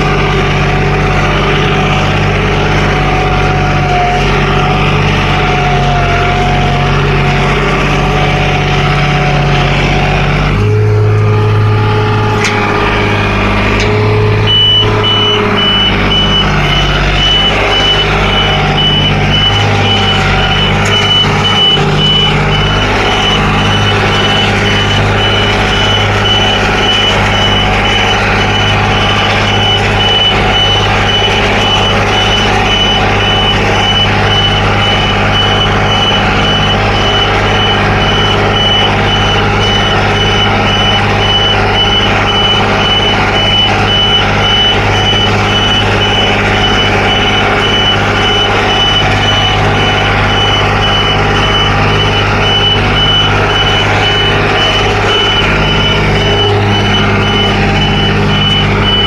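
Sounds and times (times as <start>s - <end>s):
tractor diesel engine running: 0.0s - 59.0s
rapid high-pitched electronic beep: 14.0s - 59.0s.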